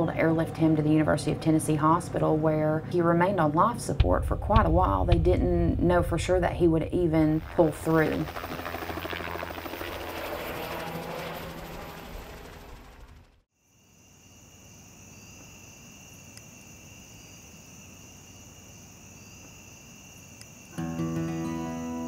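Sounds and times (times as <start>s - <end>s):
helicopter rotor chop: 0.0s - 13.4s
insects buzzing: 7.5s - 12.8s, 13.6s - 22.0s.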